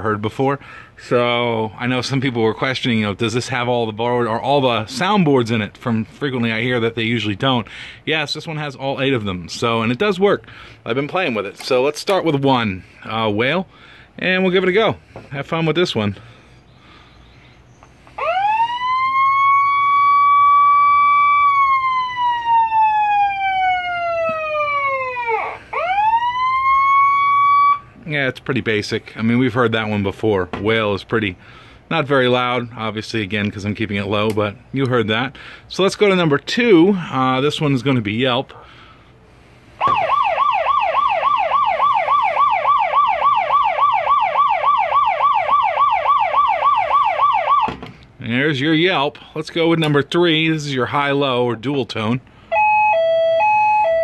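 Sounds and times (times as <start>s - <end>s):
electronic siren wailing: 18.2s - 27.9s, 39.8s - 47.7s, 52.5s - 54.0s.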